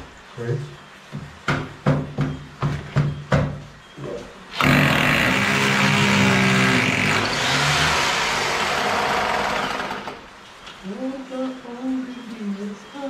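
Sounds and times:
cordless drill drilling into wood: 4.5s - 10.3s.

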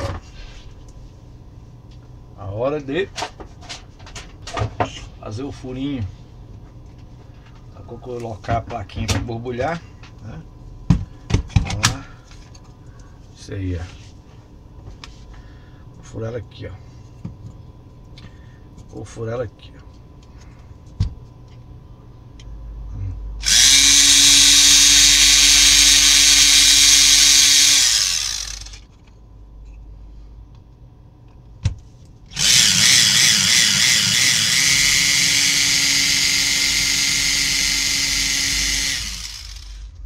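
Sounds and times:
electric drill boring holes: 23.4s - 28.9s, 32.3s - 40.0s.

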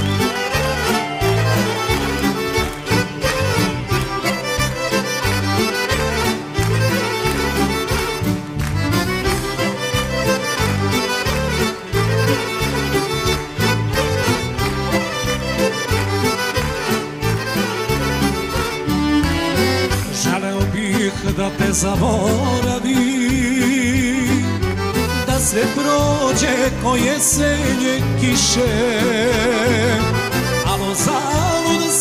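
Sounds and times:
bass and beat: 0.0s - 31.8s
accordion: 0.0s - 32.0s.

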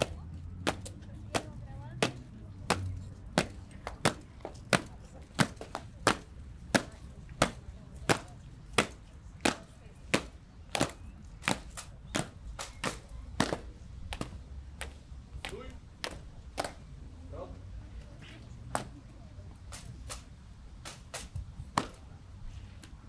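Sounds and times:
marching boots on stone: 0.0s - 16.8s.

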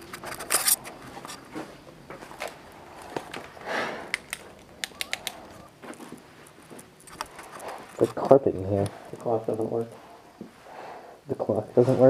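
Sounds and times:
footsteps and scuffs: 0.0s - 3.6s, 5.3s - 10.6s
sharp clicks: 3.2s - 5.7s.

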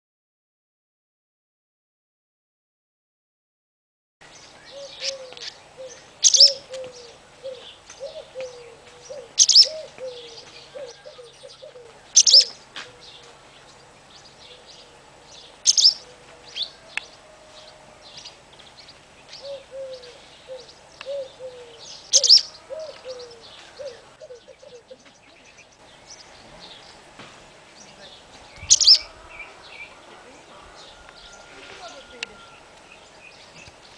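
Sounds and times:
loud sharp bird calls: 4.3s - 27.1s, 27.7s - 33.9s
swallows twittering: 4.4s - 27.0s, 27.7s - 33.9s
low fast bird warbling: 4.7s - 11.4s, 12.2s - 12.6s, 15.6s - 16.8s, 19.4s - 24.5s, 28.6s - 29.9s.

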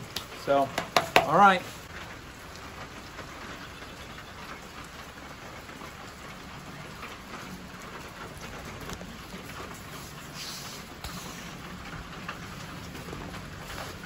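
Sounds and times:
rain falling steadily: 0.0s - 14.0s
raindrops ticking: 0.0s - 14.0s.

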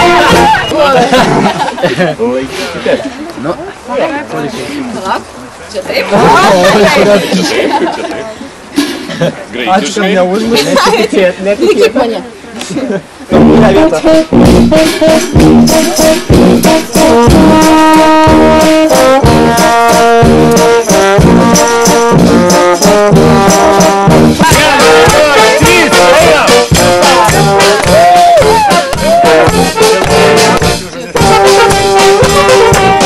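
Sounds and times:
fast drum beat: 0.0s - 1.6s, 13.4s - 33.0s
brass band music: 0.0s - 1.7s, 13.3s - 33.0s.

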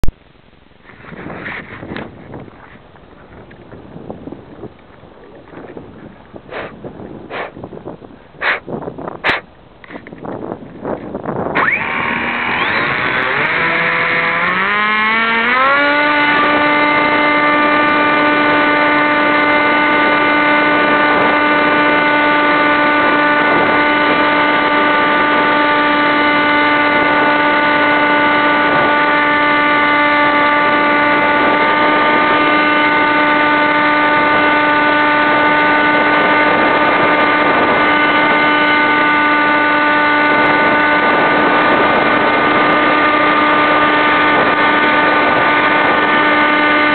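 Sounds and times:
electric motor and propeller whine: 0.8s - 46.9s.

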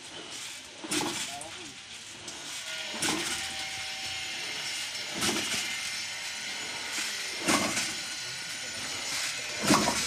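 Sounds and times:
sharp clacks of drilling pipe: 0.2s - 10.0s.

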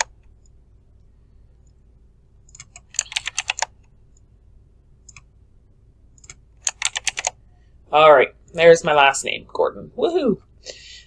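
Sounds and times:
faint steady hum: 0.0s - 11.0s
keyboard keystrokes: 2.5s - 3.7s, 6.2s - 7.4s.

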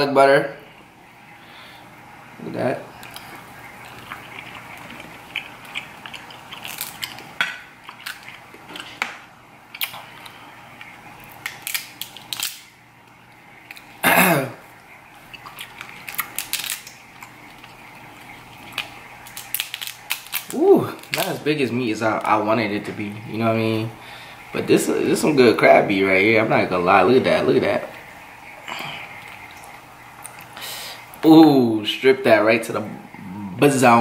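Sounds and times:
crab shells cracking: 3.0s - 14.0s, 14.8s - 22.4s
brief vocal sound: 33.2s - 34.0s.

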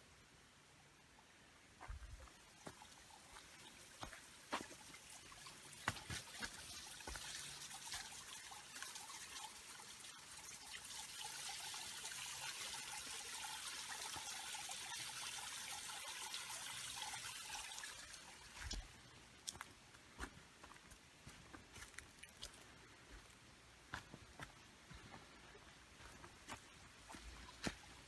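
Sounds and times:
stream water trickling: 1.0s - 28.0s
footsteps on trail: 1.8s - 4.9s, 5.8s - 8.1s, 18.6s - 28.0s.

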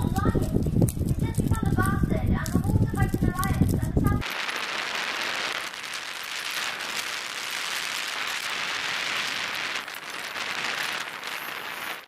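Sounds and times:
steady hiss with fine patter: 0.0s - 12.0s.

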